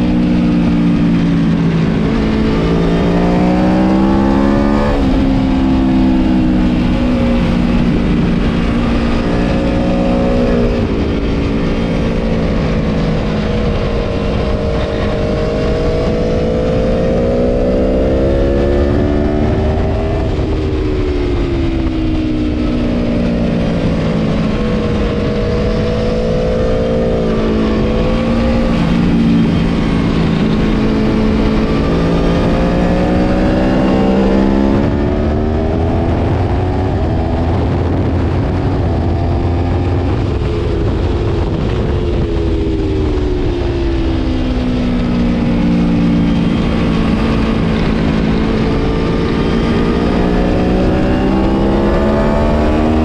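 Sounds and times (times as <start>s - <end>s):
motorcycle engine revving: 0.0s - 53.0s.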